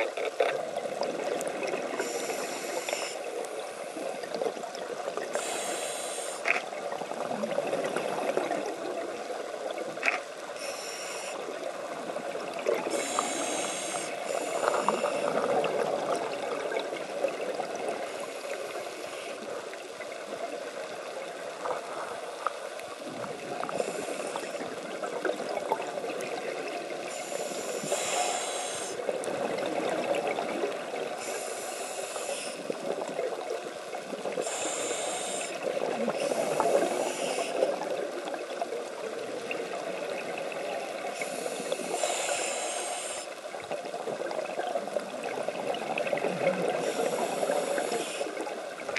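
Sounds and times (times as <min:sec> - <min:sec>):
regulator inhalation hiss: 0:02.0 - 0:04.2, 0:05.3 - 0:06.5, 0:10.6 - 0:11.5, 0:12.9 - 0:15.4, 0:18.0 - 0:19.5, 0:23.7 - 0:24.7, 0:27.1 - 0:29.0, 0:31.2 - 0:32.7, 0:34.4 - 0:37.7, 0:41.1 - 0:43.4, 0:46.8 - 0:48.4
underwater bubbling rumble: 0:06.6 - 0:10.4, 0:19.5 - 0:28.1, 0:28.9 - 0:31.2, 0:43.4 - 0:48.9.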